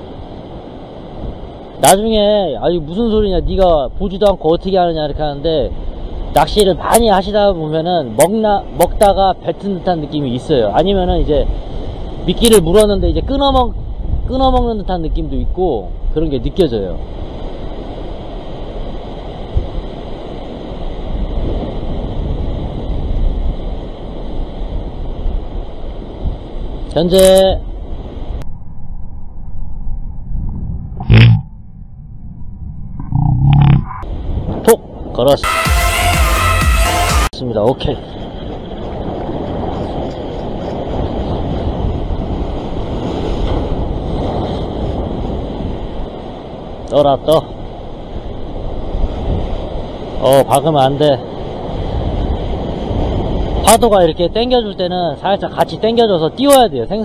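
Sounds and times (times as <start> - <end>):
surf washing over rocks: 0.0 - 13.7
wind on microphone: 0.0 - 35.5, 37.3 - 57.0
low bump: 28.4 - 34.7.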